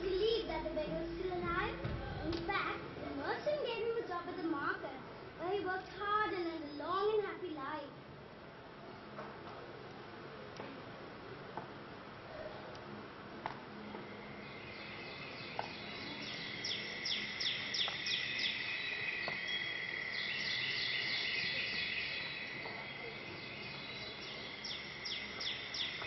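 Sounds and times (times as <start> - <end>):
insects chirping: 13.8 - 26.0
high bird trill: 14.1 - 26.0.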